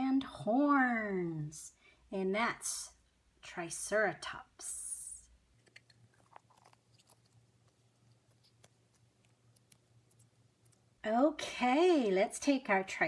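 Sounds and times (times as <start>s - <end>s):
faint low hum: 0.3s - 13.0s
hands pressing modelling dough: 5.5s - 11.1s.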